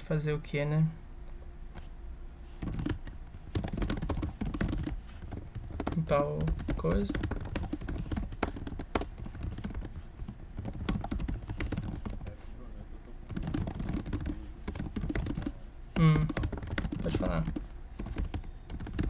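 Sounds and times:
voice: 0:00.0 - 0:01.0, 0:05.9 - 0:07.2, 0:12.1 - 0:13.3, 0:16.0 - 0:16.4, 0:17.0 - 0:17.6
keyboard typing: 0:02.6 - 0:12.5, 0:13.3 - 0:19.0.

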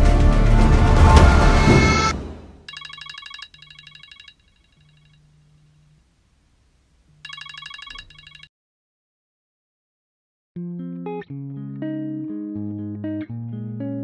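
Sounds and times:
mobile phone ringing: 0:01.8 - 0:05.6, 0:07.2 - 0:08.5.

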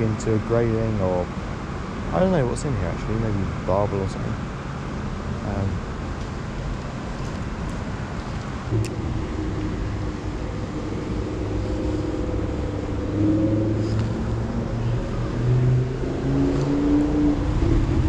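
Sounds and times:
vehicle engine running: 0:04.8 - 0:18.0.

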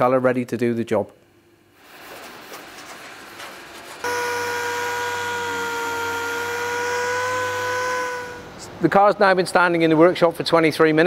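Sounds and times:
low hum and hiss: 0:00.0 - 0:11.0
orbital sander whining: 0:04.0 - 0:08.8.

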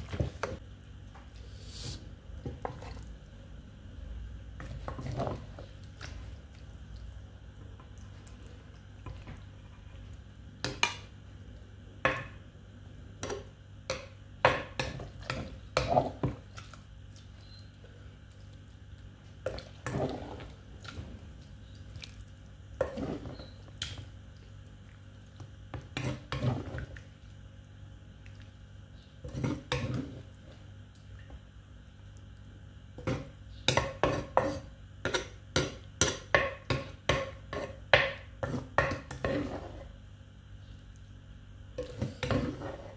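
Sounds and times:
wet squishing: 0:16.4 - 0:22.8.

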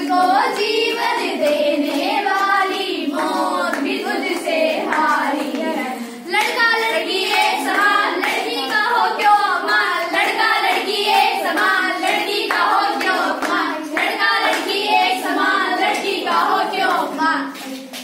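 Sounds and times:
hands clapping in time: 0:00.0 - 0:09.3, 0:10.1 - 0:14.8
girls singing together: 0:00.0 - 0:18.0.

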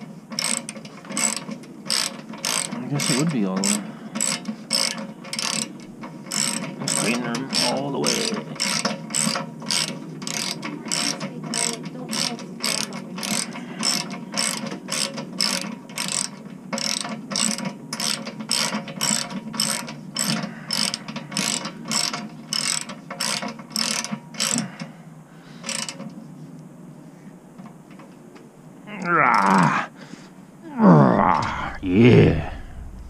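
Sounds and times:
socket ratchet clicking: 0:00.3 - 0:24.7.

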